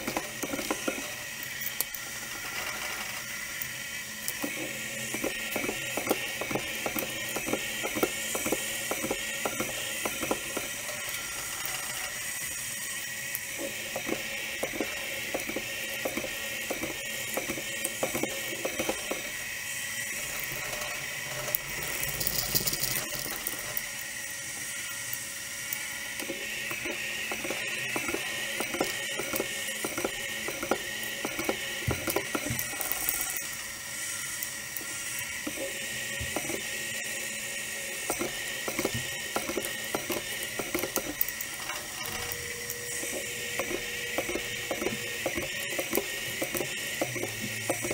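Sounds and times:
milling machine whine: 0.0s - 47.9s.

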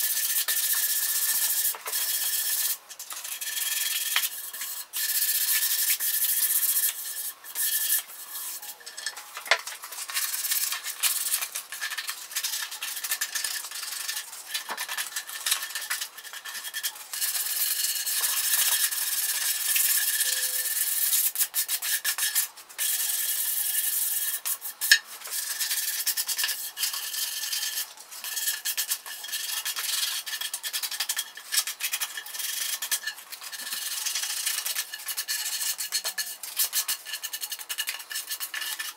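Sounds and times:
sandpaper scratching on wood: 0.0s - 8.9s, 9.8s - 38.9s.

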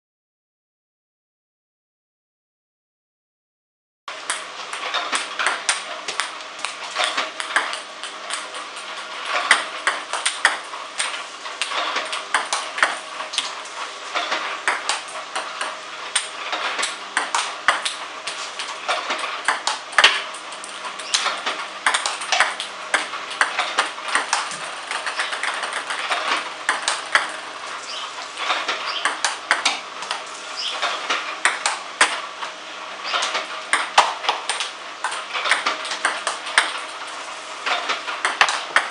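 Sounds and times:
table tennis balls clicking: 4.3s - 13.6s, 14.2s - 32.2s, 33.1s - 38.9s.

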